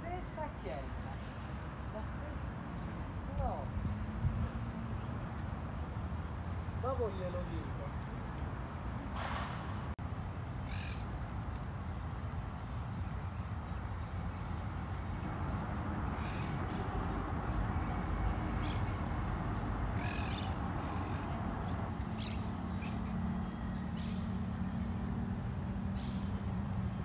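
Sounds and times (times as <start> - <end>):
low rumble of city traffic: 0.0 - 27.0
birds calling: 10.5 - 11.2, 16.0 - 24.8, 25.9 - 26.5.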